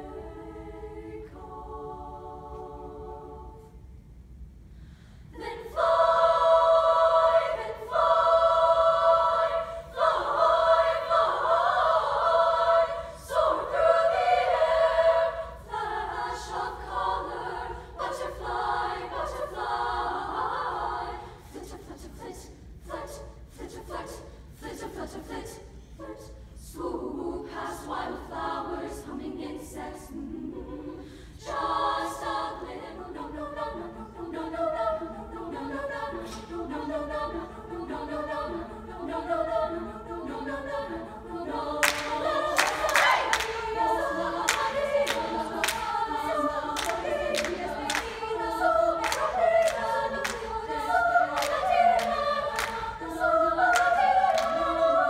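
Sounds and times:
women's choir singing: 0.0s - 3.8s, 5.3s - 55.0s
hand claps: 41.8s - 43.6s, 44.5s - 46.0s, 46.8s - 48.2s, 49.0s - 50.5s, 51.3s - 52.8s, 53.7s - 54.6s.

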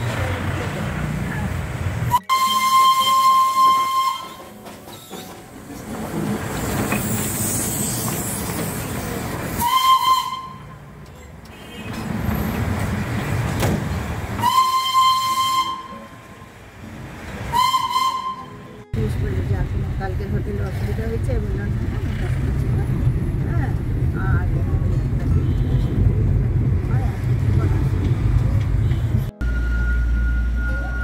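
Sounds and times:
train rumble and hiss: 0.0s - 11.0s
train whistle: 2.1s - 4.6s, 9.6s - 10.8s, 14.4s - 16.3s, 17.5s - 18.7s.

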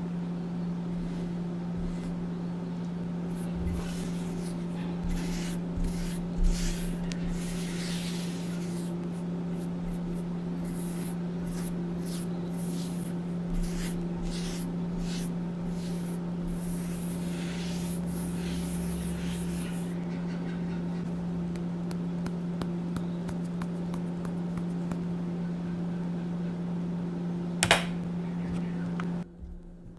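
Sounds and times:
steady low hum: 0.0s - 29.9s
paintbrush swishing through chalk: 3.3s - 20.0s.

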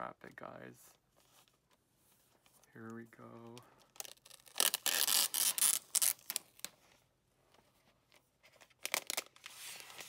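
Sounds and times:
plastic wrap crinkling: 3.8s - 6.7s.

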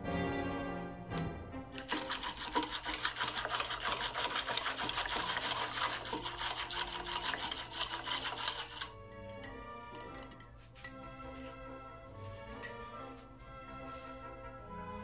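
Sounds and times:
stick rubbed between palms: 1.8s - 9.0s.

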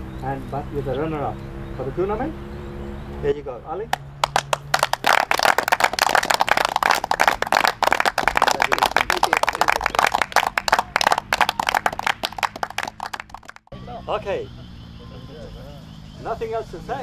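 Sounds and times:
people applauding: 4.2s - 13.7s.

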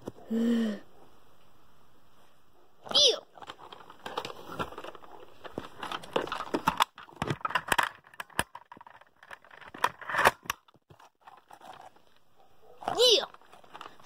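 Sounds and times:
plastic clicks and knocks: 3.4s - 11.9s
plastic toy blaster handling noise: 3.4s - 12.0s.

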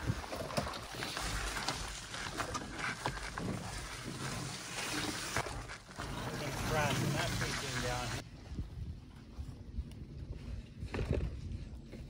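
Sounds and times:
gear knocking and rustling: 0.0s - 8.2s
wind rumble on microphone: 7.8s - 12.0s
footsteps on trail: 8.6s - 12.0s.

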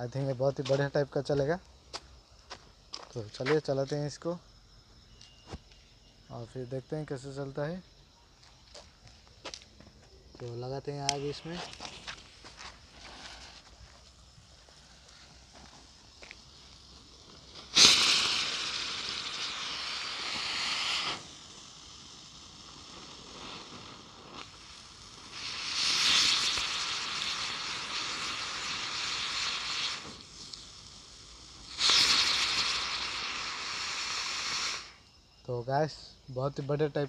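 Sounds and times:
quiet fizz: 0.0s - 35.6s
ground firework hissing sparks: 0.0s - 37.0s
firework pop: 17.5s - 21.4s, 25.3s - 30.7s, 31.7s - 35.0s.

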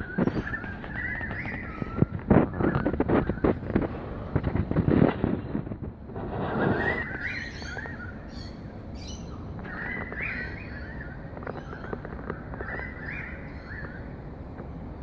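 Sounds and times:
bird warbling call: 0.0s - 3.8s, 6.4s - 14.1s
outdoor background noise: 0.0s - 15.0s.

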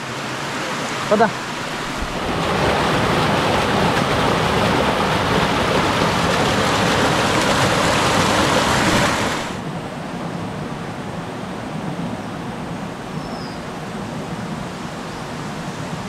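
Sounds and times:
waterfall rushing: 0.0s - 9.7s.

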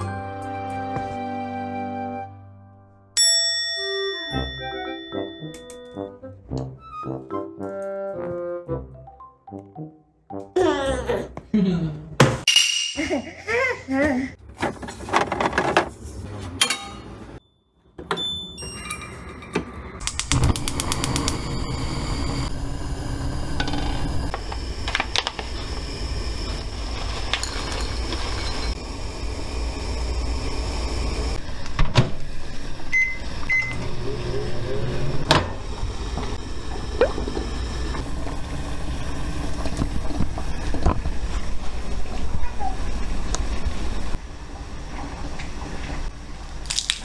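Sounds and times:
water boiling in saucepan: 20.2s - 31.5s, 35.6s - 46.6s.

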